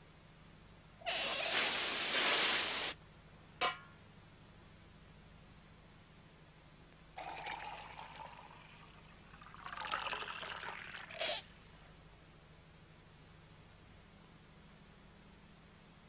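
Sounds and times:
wine pouring into a cup: 7.2 - 11.4.

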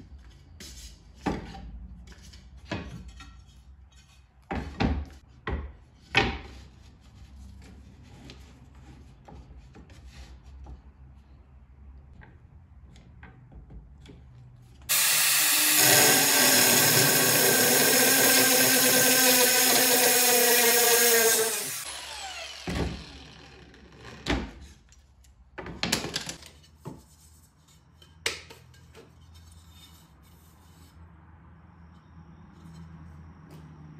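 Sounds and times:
knocks and scrapes: 0.0 - 11.4, 23.8 - 33.9
angle grinder cutting tile: 14.9 - 24.2.

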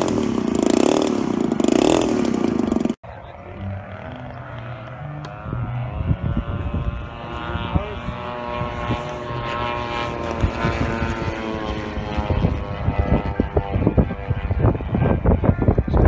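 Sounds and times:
model plane engines droning: 0.0 - 16.0
wind buffeting microphone: 4.4 - 16.0.

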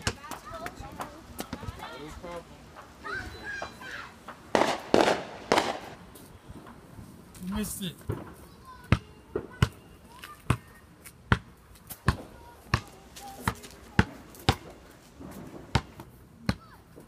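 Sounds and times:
firecrackers popping: 0.0 - 8.5.

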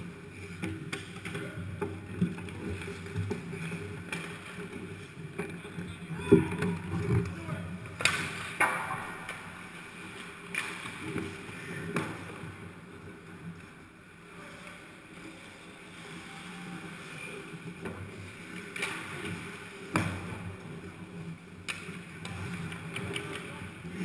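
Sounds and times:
skates scraping on ice: 0.0 - 24.0
sticks and puck knocking: 8.0 - 9.6.

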